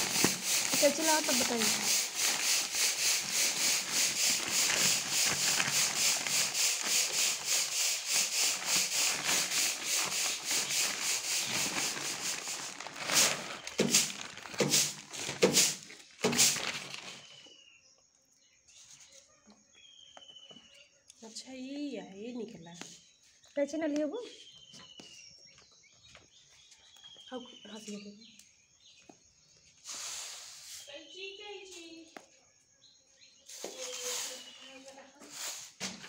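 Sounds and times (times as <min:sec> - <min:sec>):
plastic bag crackles: 0:00.0 - 0:17.4
plastic bag crinkling: 0:00.0 - 0:17.4.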